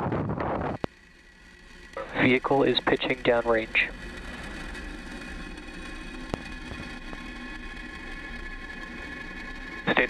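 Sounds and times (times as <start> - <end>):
rocket engines rushing: 0.0 - 10.0.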